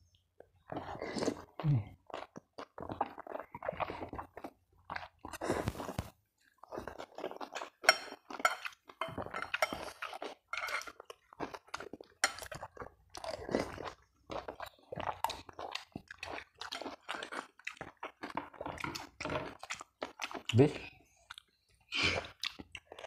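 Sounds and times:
chewing and slurping noodles: 0.4 - 23.0
cutlery clinking on glass bowl: 7.8 - 11.0.

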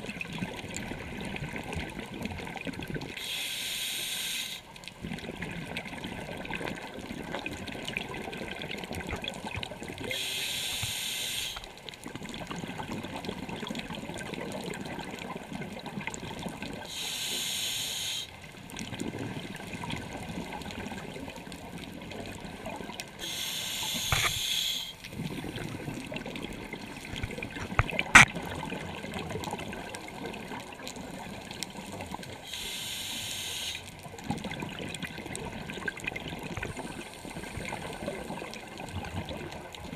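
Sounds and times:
exhaled air bubbling: 0.0 - 39.9
diver inhaling through regulator: 3.2 - 4.7, 10.1 - 11.7, 16.9 - 18.3, 23.2 - 25.0, 32.4 - 33.9.

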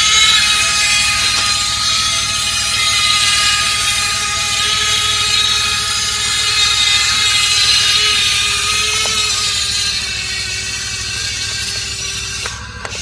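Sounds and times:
toy excavator motors whining: 0.0 - 13.0.

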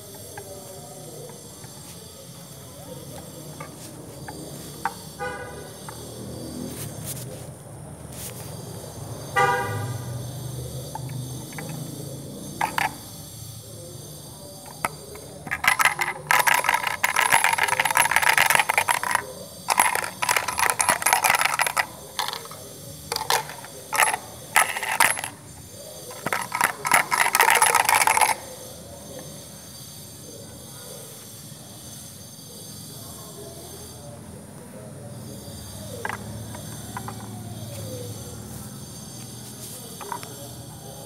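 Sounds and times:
gumball machine rattling and clicking: 2.6 - 6.1, 10.9 - 13.3, 14.6 - 28.8, 35.8 - 37.6, 40.0 - 40.4
coin-like clink: 26.2 - 28.5.

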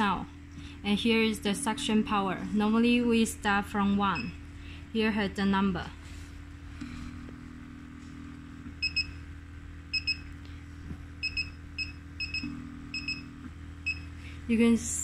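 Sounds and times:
pump humming: 6.1 - 14.6.

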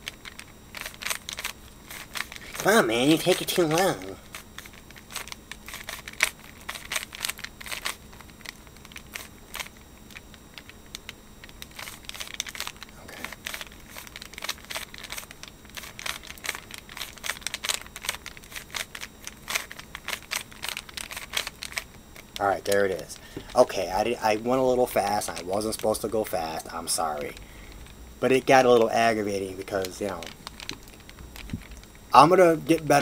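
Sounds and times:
puzzle cube plastic clicks: 0.0 - 23.6, 29.8 - 31.9.

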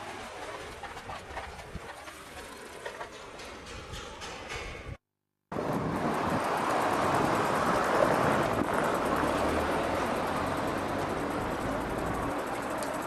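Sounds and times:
street noise: 0.0 - 13.0
vehicle passing: 5.6 - 13.0.

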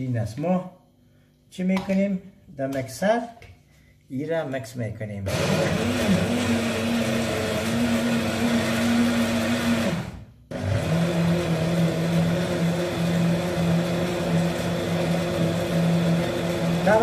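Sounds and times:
electric blender grinding: 5.3 - 17.0.

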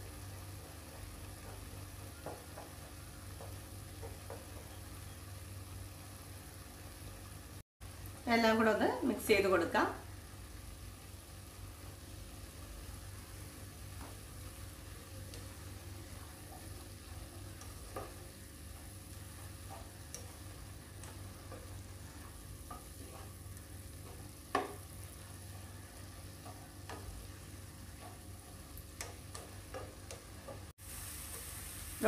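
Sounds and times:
faint frying sizzle: 0.0 - 32.0
spatula tapping on pan: 0.6 - 4.8, 17.5 - 18.9, 23.9 - 25.2, 26.2 - 30.7
spatula scraping a pan: 16.2 - 31.6.

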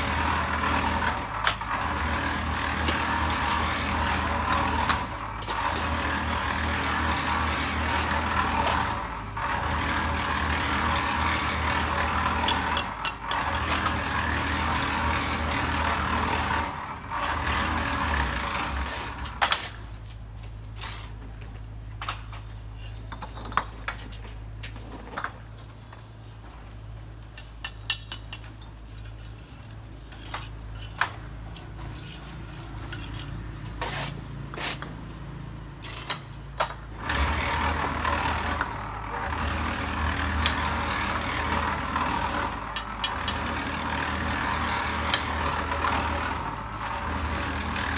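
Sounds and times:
trowels scraping mortar: 9.6 - 21.3, 27.7 - 35.0, 40.4 - 47.9
trowel tapping bricks: 27.3 - 28.6.

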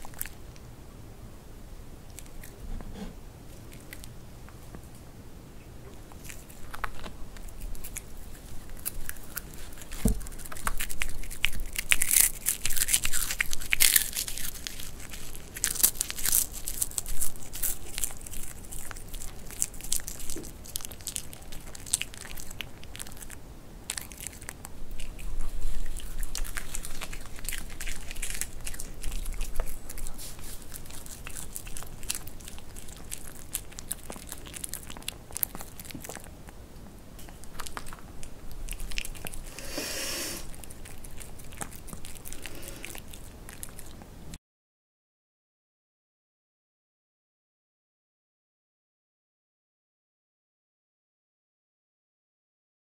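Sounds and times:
dog crunching vegetables: 0.0 - 0.7, 2.0 - 5.1, 5.8 - 44.4.

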